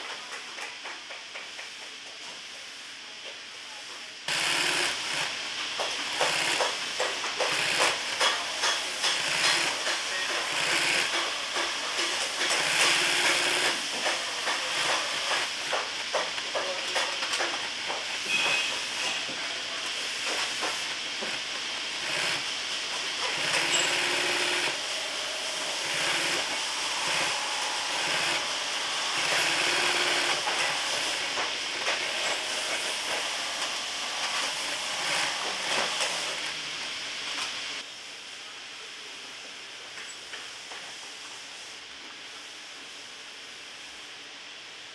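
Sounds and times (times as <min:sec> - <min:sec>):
steady hiss: 0:00.0 - 0:44.9
sewing machine stitching leather: 0:04.3 - 0:05.4, 0:06.1 - 0:13.8, 0:22.0 - 0:22.4, 0:23.2 - 0:24.8, 0:25.8 - 0:28.5, 0:29.1 - 0:31.2.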